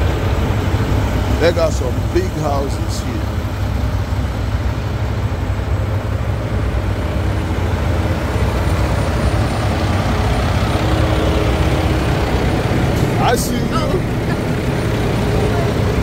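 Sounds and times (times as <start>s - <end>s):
truck diesel engine rumbling: 0.0s - 16.0s.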